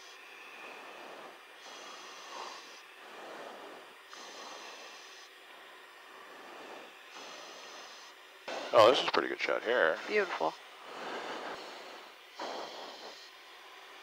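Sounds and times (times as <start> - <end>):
person breathing into microphone: 0.0 - 5.4, 10.8 - 13.4.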